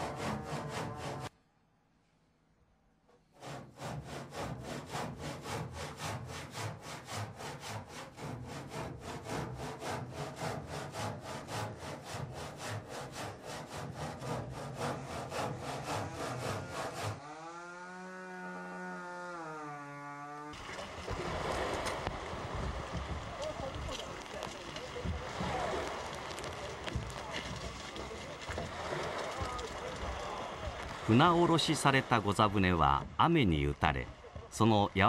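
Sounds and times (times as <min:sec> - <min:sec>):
hand saw cutting wood: 0:00.0 - 0:01.3, 0:03.4 - 0:20.6.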